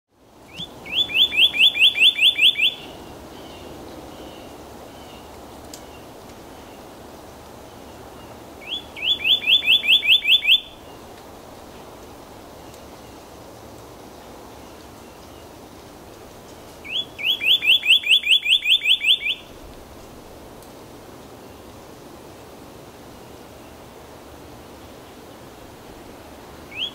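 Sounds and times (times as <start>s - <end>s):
bird singing whistled notes: 0.5s - 3.6s, 8.6s - 11.0s, 16.8s - 19.6s, 26.7s - 26.9s.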